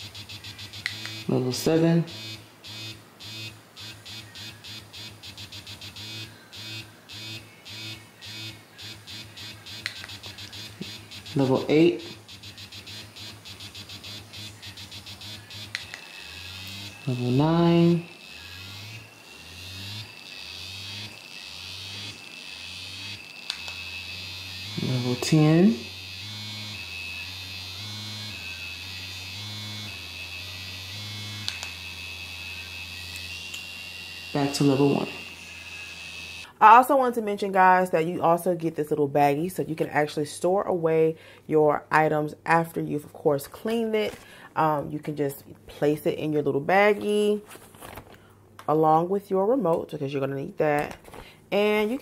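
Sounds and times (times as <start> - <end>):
pulsing toy motor buzz: 0.0 - 1.4, 2.1 - 36.5.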